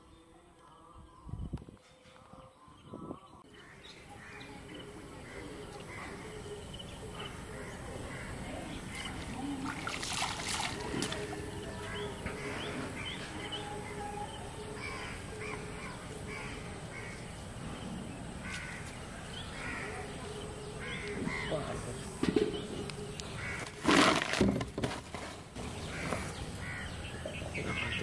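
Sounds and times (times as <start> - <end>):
crows cawing: 18.4 - 18.9, 19.6 - 20.0, 20.8 - 21.6, 23.4 - 23.7, 25.8 - 28.0
loud thumps and rustling: 23.6 - 25.5.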